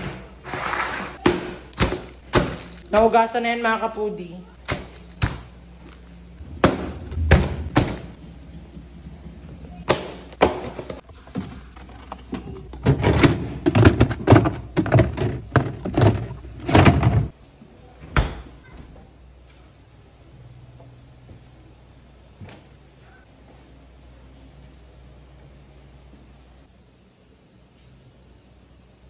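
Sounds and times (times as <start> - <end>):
plastic containers clattering: 0.0 - 3.2, 9.9 - 17.3
refrigerator door shutting: 6.4 - 8.2.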